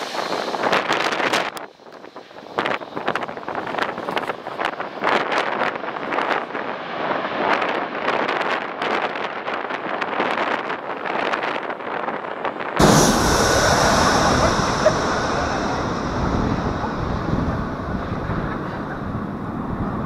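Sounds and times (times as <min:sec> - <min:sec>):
jet engines rushing and whining: 0:00.0 - 0:04.2, 0:12.8 - 0:20.0
wind buffeting microphone: 0:00.0 - 0:20.0.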